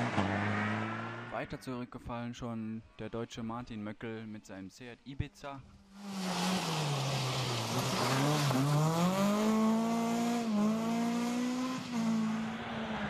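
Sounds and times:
rally car engine revving: 0.0 - 1.4, 6.0 - 13.0.

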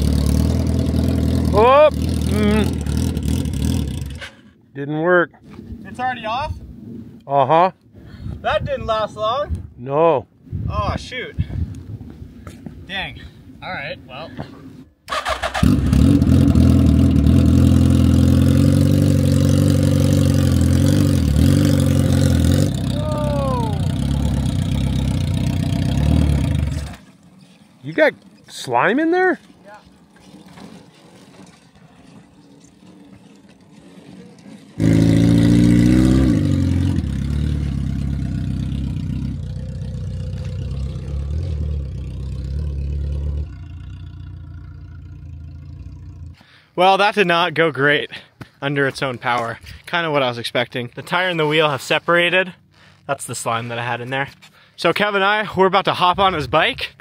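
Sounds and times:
motorcycle engine running: 0.0 - 4.3, 15.2 - 27.2, 34.7 - 46.4.

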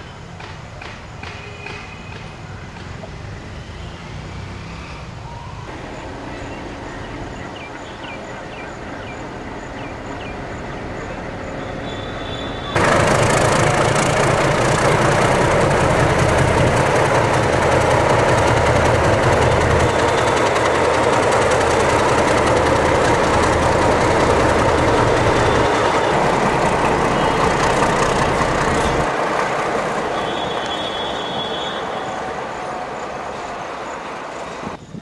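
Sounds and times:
diesel locomotive engine throbbing: 12.6 - 34.8.

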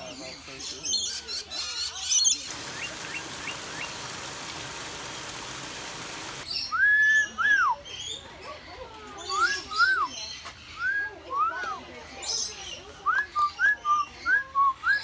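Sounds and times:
small waterfall splashing into pond: 2.4 - 6.5.

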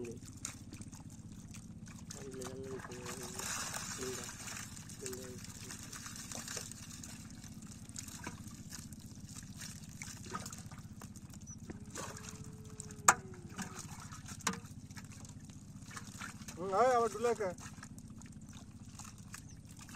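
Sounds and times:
shallow water trickling and splashing: 0.0 - 19.9
small knocks: 14.4 - 14.7.

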